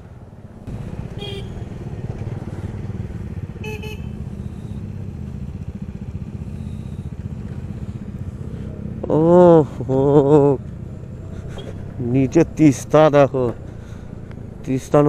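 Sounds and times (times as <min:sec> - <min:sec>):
motorcycle engine running: 0:00.7 - 0:15.0
vehicle horn toots: 0:01.2 - 0:01.7, 0:03.6 - 0:04.8.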